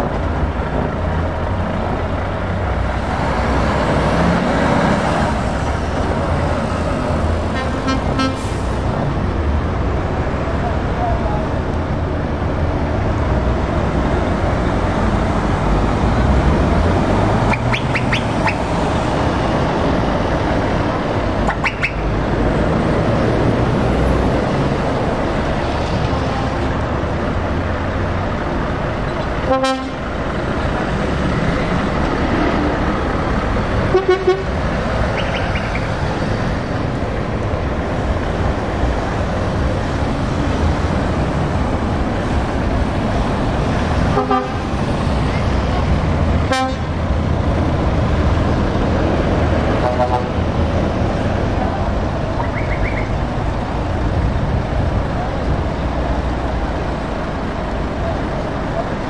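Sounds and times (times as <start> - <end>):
diesel lorries driving past: 0.0 - 59.0
horn toots: 7.5 - 8.7, 29.4 - 30.0, 33.9 - 34.6, 46.5 - 46.9.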